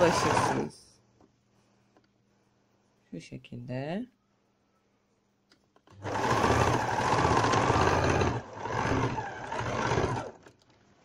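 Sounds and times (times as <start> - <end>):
electric sewing machine running: 0.0 - 0.7, 5.9 - 10.5.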